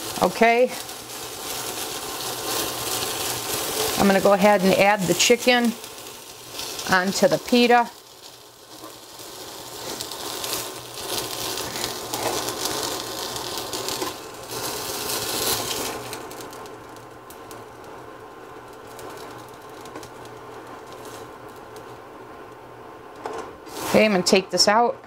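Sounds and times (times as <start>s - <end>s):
light sizzling in a pan: 0.0s - 25.0s
spatula scraping a skillet: 8.2s - 15.9s.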